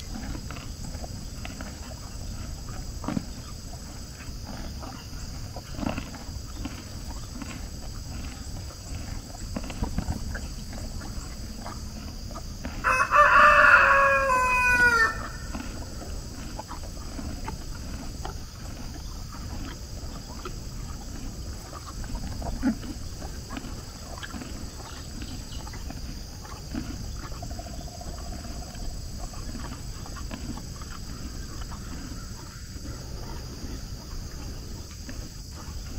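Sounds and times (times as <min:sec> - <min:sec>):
rooster crowing: 0:12.8 - 0:15.5.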